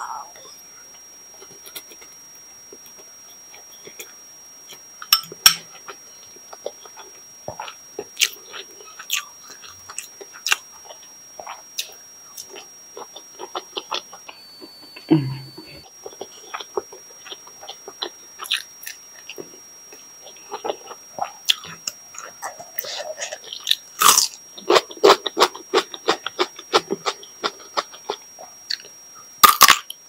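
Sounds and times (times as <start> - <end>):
mouth chewing noodles: 5.8 - 14.4, 15.2 - 29.8.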